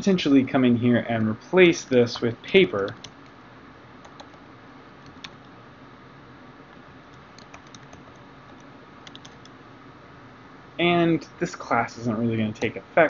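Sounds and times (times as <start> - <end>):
steady low hiss: 0.0 - 13.0
computer keyboard keystrokes: 2.8 - 3.2, 4.0 - 4.4, 5.0 - 5.4, 7.1 - 9.6.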